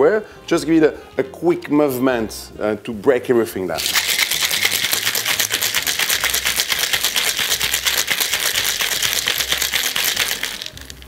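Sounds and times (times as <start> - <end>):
ice rattling in cocktail shaker: 3.8 - 11.0.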